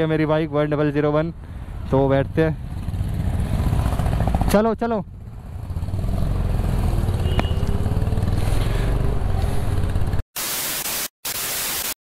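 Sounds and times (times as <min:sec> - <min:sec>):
static hiss: 0:10.4 - 0:12.0.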